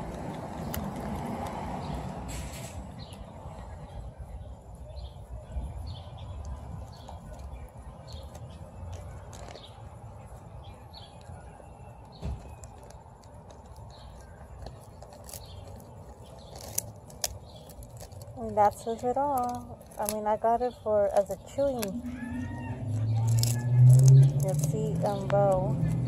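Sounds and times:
sharp crunching clicks: 0.0 - 3.2, 6.3 - 10.4, 12.0 - 26.0
bird chirping: 2.9 - 26.0
dog chewing and gnawing: 12.4 - 20.4, 21.0 - 26.0.

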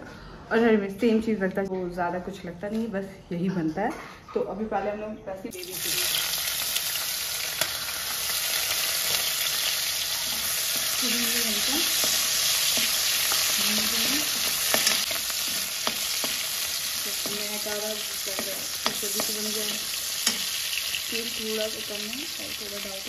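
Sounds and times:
vegetables sizzling in oil: 5.5 - 23.0.

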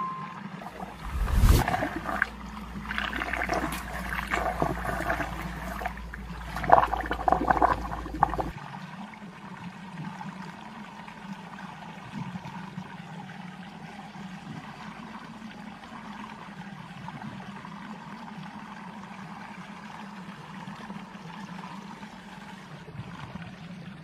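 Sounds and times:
water swirling in a whirlpool: 0.0 - 24.0
water splashing and sloshing: 0.6 - 9.4.

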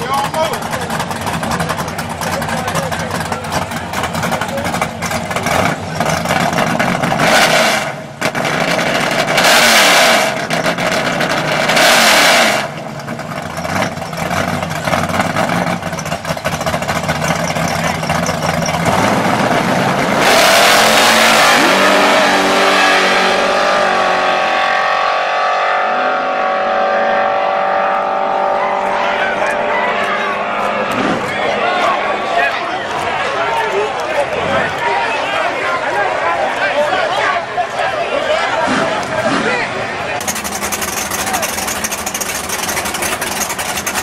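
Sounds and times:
race car engines revving: 0.0 - 44.0
race cars accelerating at full throttle: 0.0 - 44.0.

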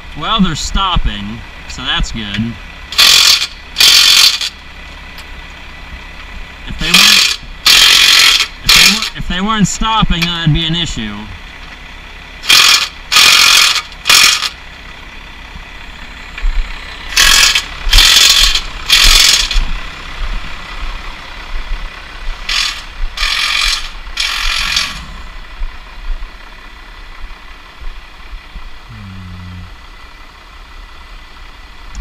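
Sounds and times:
impact wrench bursts: 2.9 - 4.6, 6.8 - 9.2, 12.4 - 14.6, 17.1 - 19.7, 22.4 - 25.2.

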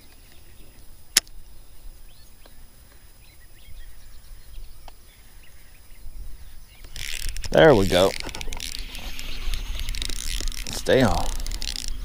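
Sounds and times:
faint bird chirps: 0.0 - 12.0
fishing reel click: 6.8 - 12.0.

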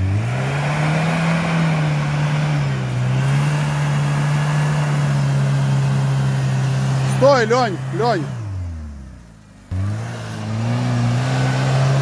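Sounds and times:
tyres churning mud: 0.0 - 8.4
engine at high revs: 0.0 - 12.0.

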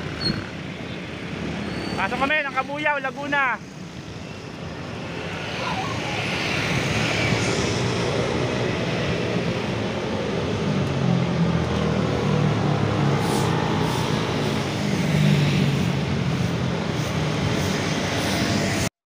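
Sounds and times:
road traffic: 0.0 - 18.9.

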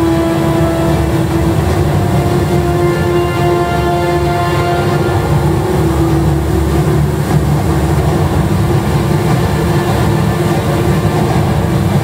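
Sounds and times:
indoor waterfall roaring: 0.0 - 12.0.

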